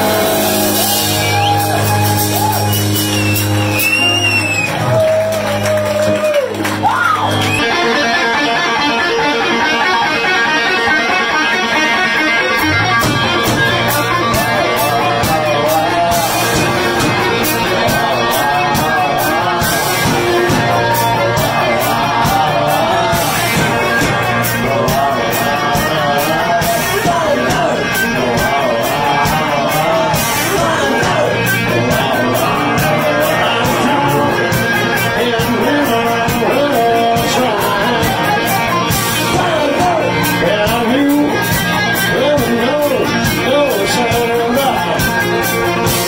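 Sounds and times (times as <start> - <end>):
bass line: 0.0 - 46.0
electric guitar bent notes: 6.5 - 46.0.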